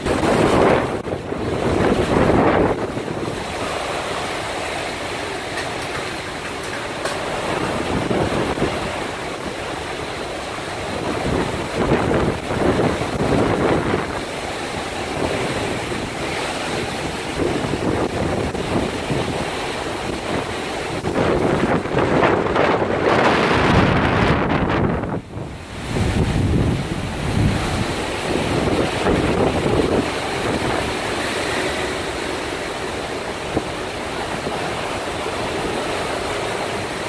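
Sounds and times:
heavy rain: 0.0s - 37.0s
strong wind gusts: 0.0s - 37.0s
wind buffeting microphone: 0.0s - 37.0s.

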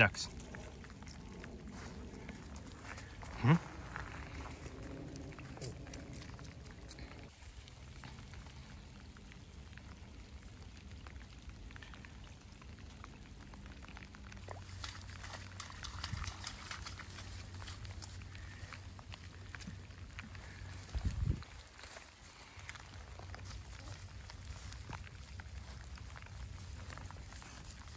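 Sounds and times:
footsteps on wet reeds: 0.1s - 8.6s, 14.4s - 27.9s.

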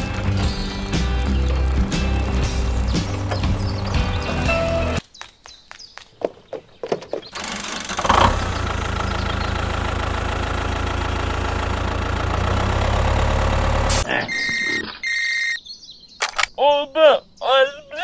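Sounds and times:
tractor engine idling: 0.0s - 5.0s, 7.3s - 14.0s.

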